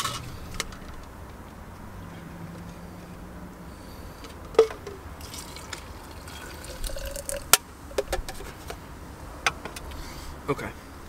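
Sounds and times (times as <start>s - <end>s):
liquid pouring into plastic jug: 5.2s - 7.6s.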